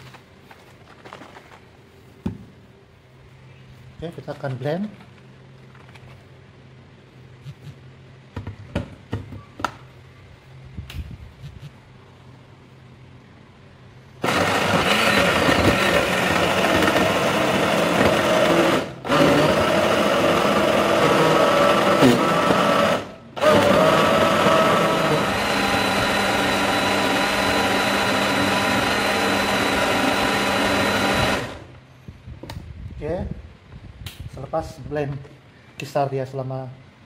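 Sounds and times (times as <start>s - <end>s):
blender motor running: 14.2s - 31.7s.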